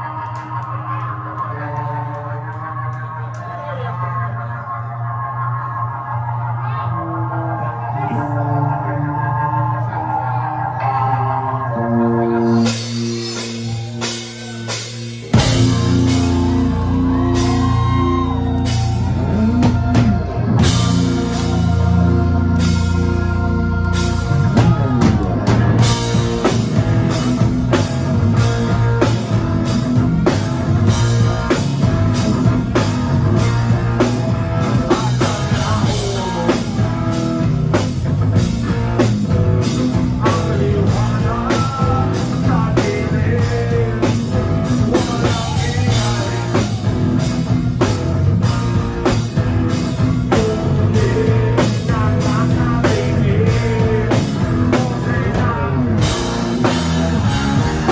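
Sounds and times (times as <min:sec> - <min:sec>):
bass guitar: 0:00.0 - 0:57.9
distorted electric guitars: 0:00.0 - 0:57.9
person singing: 0:00.0 - 0:57.9
drum kit beat: 0:12.5 - 0:57.9.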